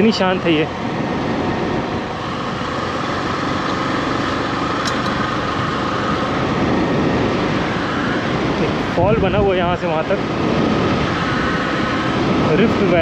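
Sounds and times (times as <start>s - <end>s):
motorcycle engine drone: 0.0s - 13.0s
road noise: 0.0s - 13.0s.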